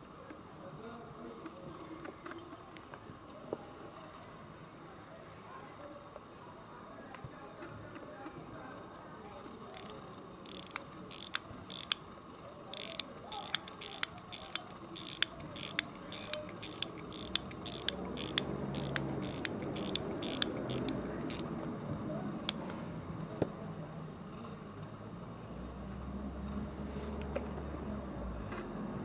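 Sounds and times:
pocket watch winding clicks: 0:09.7 - 0:12.1, 0:12.7 - 0:21.8, 0:22.4 - 0:23.1.

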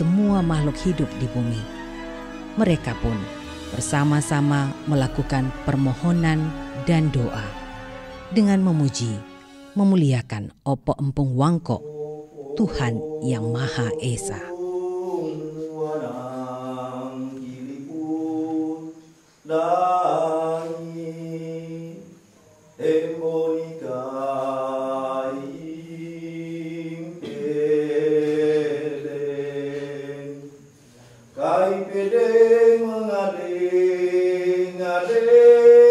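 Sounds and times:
breaths between phrases: 0:03.3 - 0:03.8, 0:30.8 - 0:31.4
man chanting: 0:11.8 - 0:18.9, 0:31.3 - 0:35.9.

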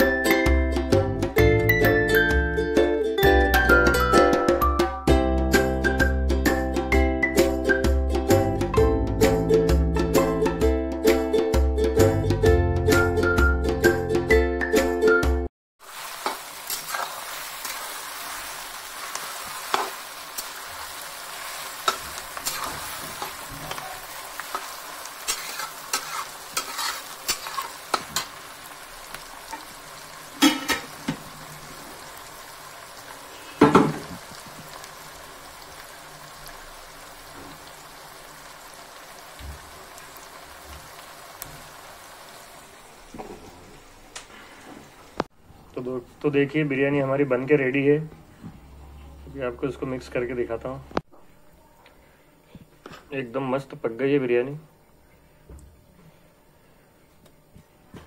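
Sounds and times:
onions sizzling in hot oil: 0:15.8 - 0:45.3
spatula scraping a metal pan: 0:24.5 - 0:28.4.

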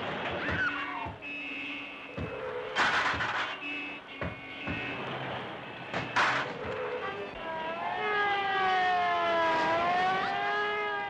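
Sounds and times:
car and traffic sound effects: 0:00.0 - 0:11.0
knocks: 0:02.2 - 0:03.5, 0:04.2 - 0:04.9.

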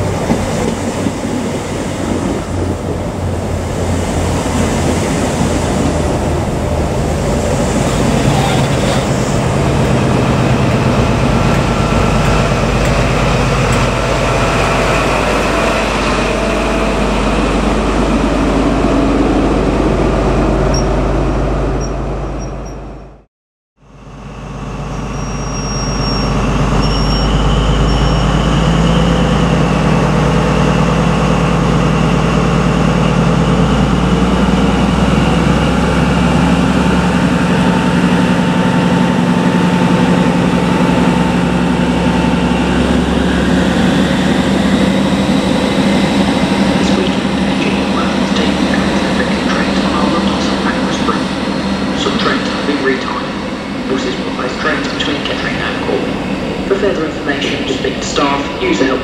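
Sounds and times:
train passing at speed: 0:00.0 - 0:23.2, 0:23.8 - 0:59.0
diesel engine drone: 0:00.0 - 0:59.0
high steady engine whine: 0:23.8 - 0:59.0.

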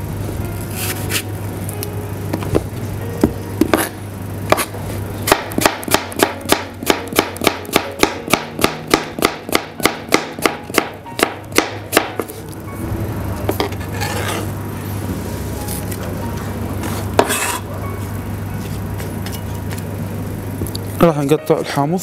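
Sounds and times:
knife chopping on cutting board: 0:03.6 - 0:12.3, 0:17.2 - 0:17.6.

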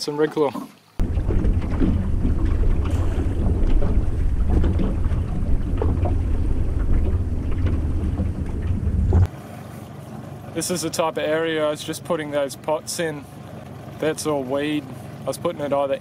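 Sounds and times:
wind buffeting microphone: 0:01.0 - 0:09.3.

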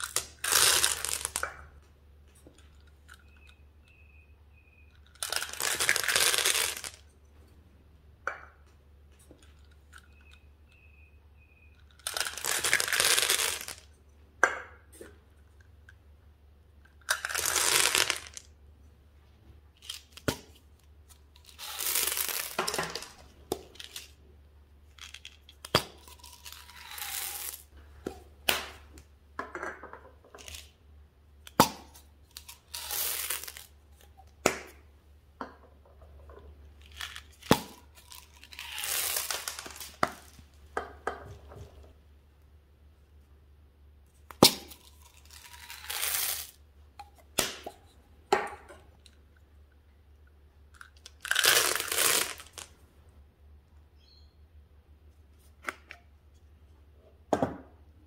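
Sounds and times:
candies rattling into a glass dish: 0:00.0 - 0:01.4, 0:05.1 - 0:07.0, 0:11.9 - 0:13.8, 0:17.0 - 0:18.5, 0:21.4 - 0:24.2, 0:24.9 - 0:27.7, 0:32.3 - 0:33.7, 0:36.8 - 0:40.4, 0:50.8 - 0:52.7.

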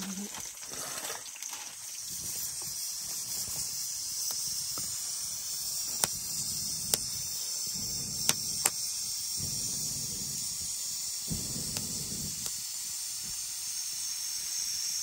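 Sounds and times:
wood fire crackling: 0:00.0 - 0:15.0
steady high hiss: 0:01.6 - 0:15.0
sharp pops: 0:02.0 - 0:14.0.

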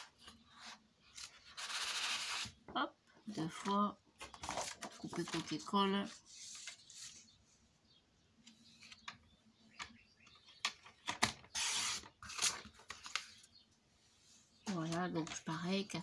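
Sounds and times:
paper handling: 0:03.6 - 0:07.2.

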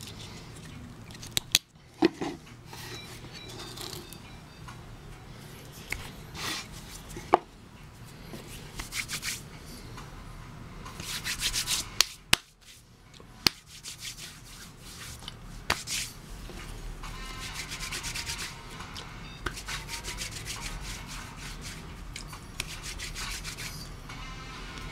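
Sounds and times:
hands rubbing a wooden board: 0:08.4 - 0:09.4, 0:11.0 - 0:12.8, 0:13.5 - 0:16.1, 0:17.4 - 0:18.6, 0:19.5 - 0:21.9, 0:22.6 - 0:23.8.

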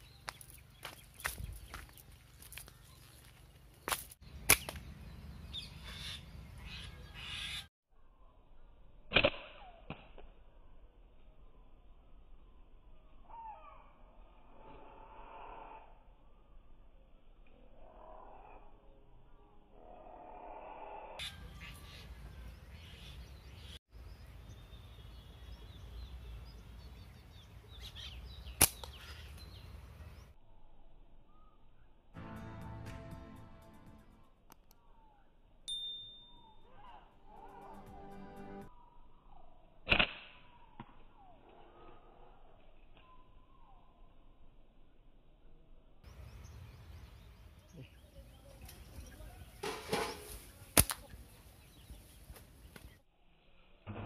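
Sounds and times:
slingshot snap: 0:09.1 - 0:10.4, 0:28.6 - 0:29.0, 0:39.9 - 0:41.1, 0:50.8 - 0:51.2
faint bird chirps: 0:10.6 - 0:32.1, 0:38.7 - 0:39.8, 0:40.4 - 0:49.6
slingshot snaps: 0:28.6 - 0:29.0, 0:50.8 - 0:51.0.

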